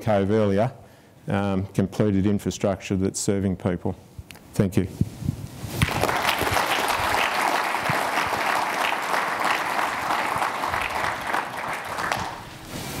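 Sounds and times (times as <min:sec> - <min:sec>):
audience applauding: 0:05.8 - 0:12.5.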